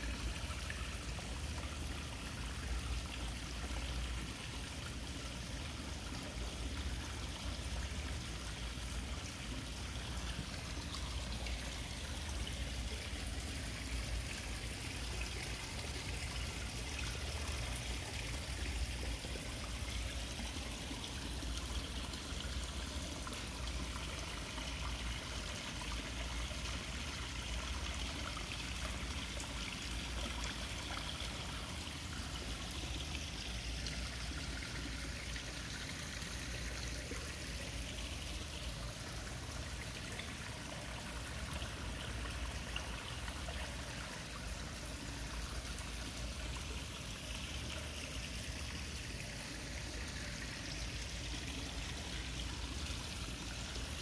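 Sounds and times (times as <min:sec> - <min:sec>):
waterfall splashing into pond: 0:00.0 - 0:54.0.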